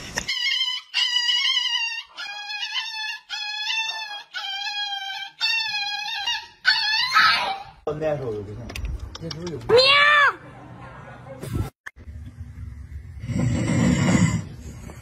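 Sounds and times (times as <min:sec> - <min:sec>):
dog high-pitched wailing: 0:00.3 - 0:07.8.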